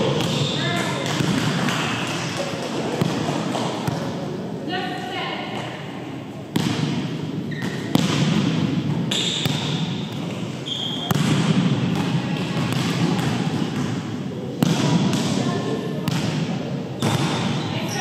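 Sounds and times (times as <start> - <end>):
volleyball hits: 0.0 - 4.2, 5.5 - 17.7
sneakers squeaking on court: 6.6 - 14.0.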